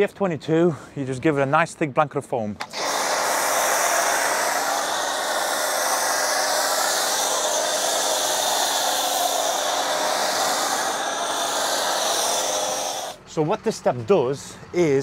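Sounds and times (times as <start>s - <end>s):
foam spraying with steady hiss: 2.6s - 13.2s.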